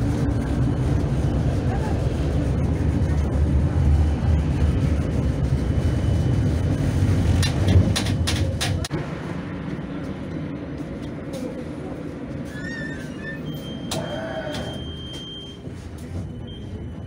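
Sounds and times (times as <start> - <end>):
tram wheels and motors rumbling: 0.0 - 17.0.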